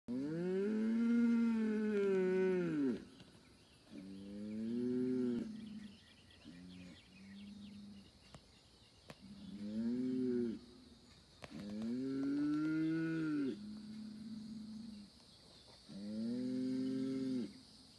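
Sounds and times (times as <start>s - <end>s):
bull bellowing: 0.1s - 3.0s.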